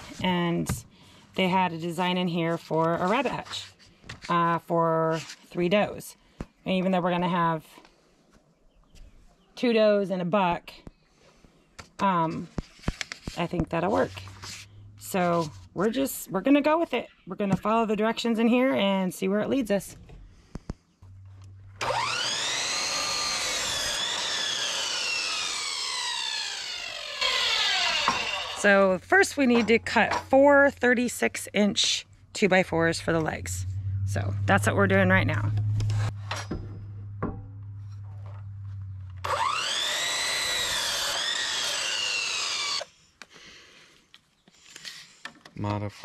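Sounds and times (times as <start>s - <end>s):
miter saw motor whine: 21.4s - 28.9s, 33.4s - 42.9s
saw blade cutting wood: 21.8s - 31.2s, 39.1s - 42.9s.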